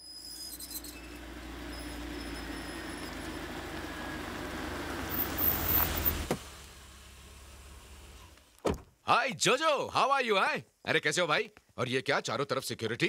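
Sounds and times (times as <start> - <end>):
car engine and tyres approaching: 0.1 - 8.6.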